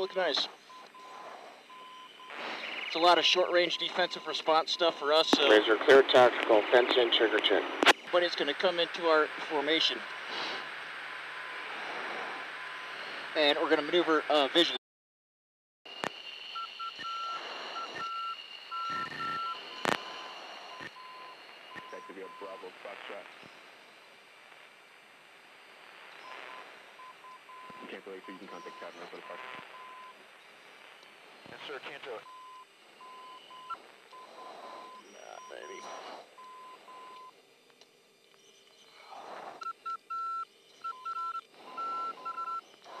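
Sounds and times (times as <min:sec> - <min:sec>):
steady high-pitched whine: 0:00.0 - 0:14.8, 0:15.9 - 0:43.0
faint hiss: 0:08.2 - 0:14.7
short electronic beeps: 0:16.6 - 0:19.9, 0:32.3 - 0:37.3, 0:39.6 - 0:42.7.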